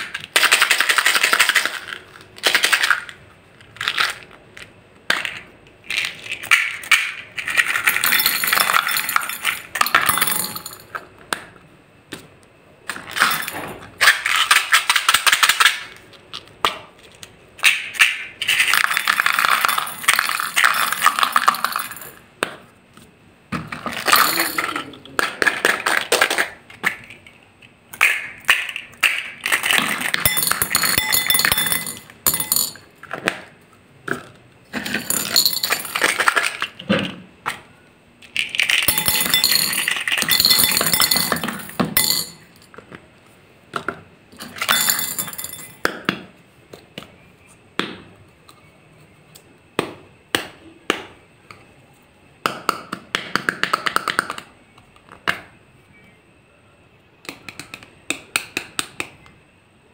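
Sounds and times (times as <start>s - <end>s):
beads rattling in plastic cups: 0.0s - 11.0s, 17.7s - 22.2s, 23.7s - 27.3s, 28.0s - 32.8s, 34.7s - 36.8s, 38.2s - 42.8s, 44.4s - 45.8s
plastic cups tapping on glass: 28.0s - 33.4s, 34.1s - 36.7s, 38.7s - 42.9s, 52.4s - 54.5s.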